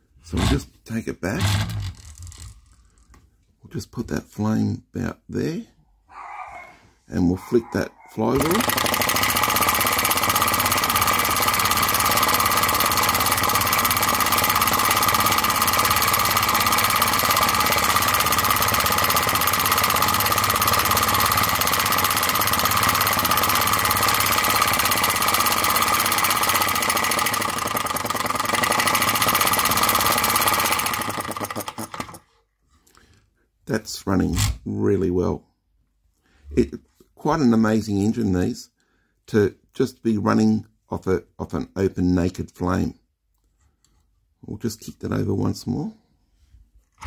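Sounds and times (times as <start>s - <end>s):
flame-licker engine running: 8.4s - 32.2s.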